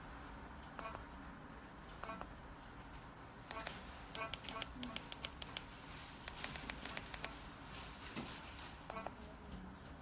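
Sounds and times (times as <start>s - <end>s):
button clicks: 3.5s - 5.6s.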